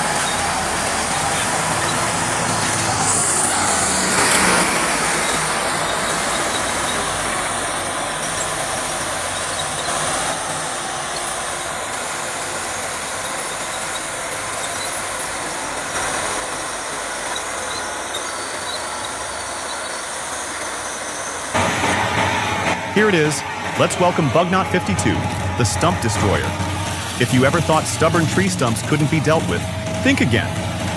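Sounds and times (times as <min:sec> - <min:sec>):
diesel machinery engines running: 0:00.0 - 0:30.9.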